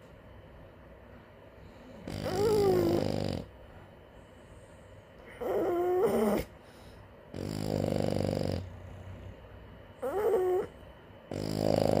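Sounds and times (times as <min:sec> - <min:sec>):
dog snoring: 0:01.8 - 0:03.6, 0:05.2 - 0:06.5, 0:07.3 - 0:09.4, 0:10.0 - 0:12.0.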